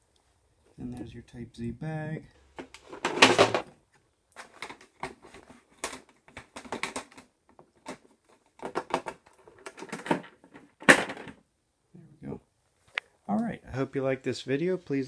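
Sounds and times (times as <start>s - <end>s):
plastic clatter and rustle: 2.6s - 11.4s
clicks and knocks on plastic: 4.4s - 11.4s.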